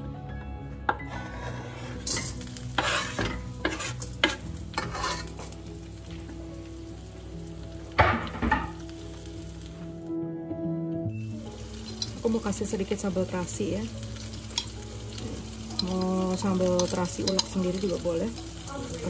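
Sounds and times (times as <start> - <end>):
knife scraping cutting board: 1.0 - 5.3
food sizzling in hot oil: 1.1 - 10.1, 11.1 - 19.0.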